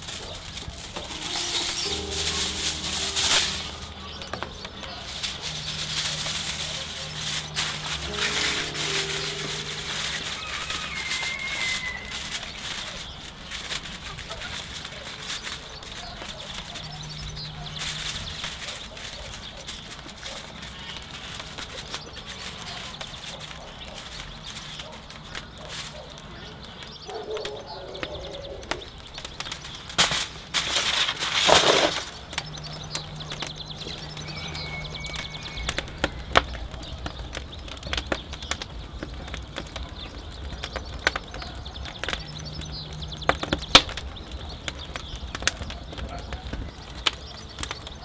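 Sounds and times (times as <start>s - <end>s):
aluminium foil crinkling: 0.0s - 48.0s
crackling and rustling: 0.0s - 48.0s
soft background music: 0.8s - 12.5s.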